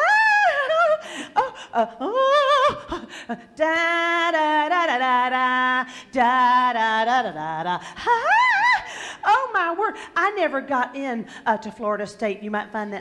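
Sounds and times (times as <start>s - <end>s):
woman singing unaccompanied: 0.0s - 13.0s.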